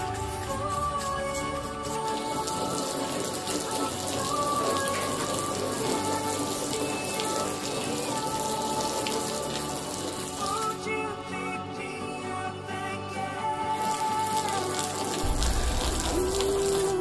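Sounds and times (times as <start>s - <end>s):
soft background music: 0.0s - 17.0s
water splashing on car hood: 1.6s - 10.8s, 13.8s - 17.0s.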